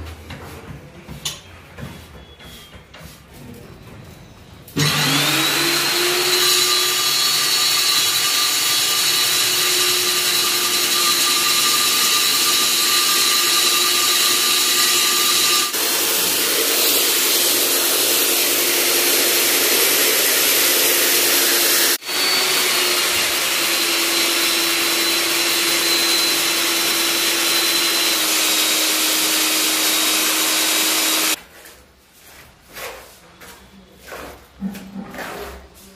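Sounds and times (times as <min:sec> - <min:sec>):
core drill whining into concrete: 0:04.8 - 0:31.4.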